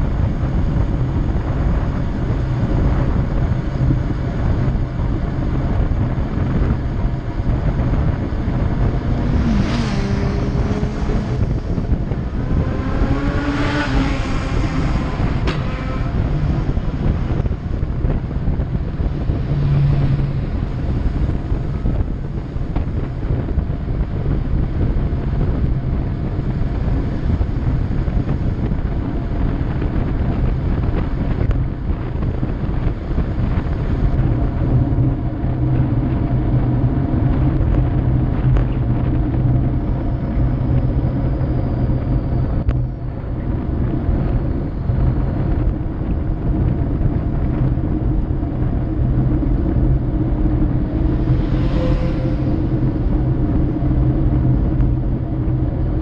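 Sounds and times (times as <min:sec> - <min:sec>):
motorcycle engine hum: 0:00.0 - 0:56.0
wind on microphone: 0:00.0 - 0:56.0
second motorcycle passing: 0:09.2 - 0:22.1, 0:50.0 - 0:54.0.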